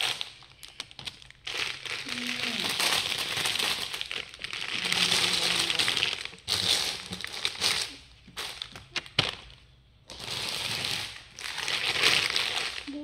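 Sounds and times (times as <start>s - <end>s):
plastic wrappers crinkling: 0.0s - 13.0s.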